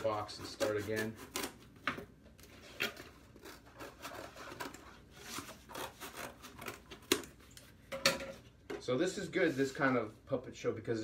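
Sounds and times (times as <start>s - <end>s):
scissors cutting cardboard: 0.0s - 7.7s
cardboard rustling and scraping: 1.8s - 7.8s.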